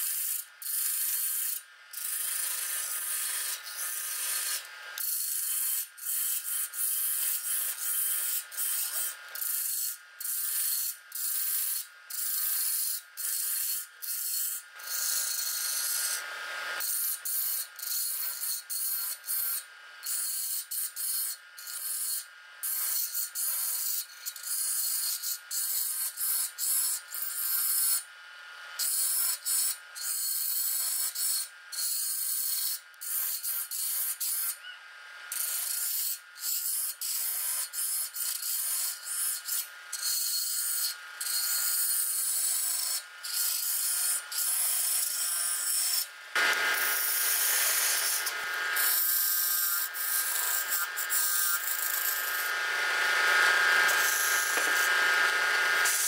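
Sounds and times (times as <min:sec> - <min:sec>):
lathe tool scraping wood: 0:01.0 - 0:09.6, 0:46.4 - 0:56.0
lathe whine: 0:46.3 - 0:56.0.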